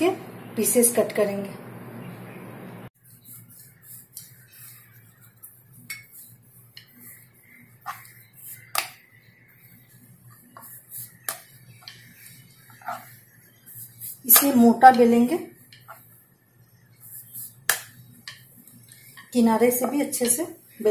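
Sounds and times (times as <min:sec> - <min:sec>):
rolling pin rolling dough: 0:03.0 - 0:20.9.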